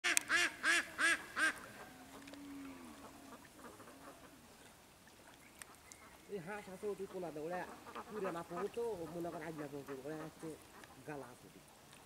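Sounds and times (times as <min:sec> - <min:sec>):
low duck call: 0:00.0 - 0:04.4
ducks quacking: 0:00.1 - 0:04.4, 0:05.2 - 0:11.4.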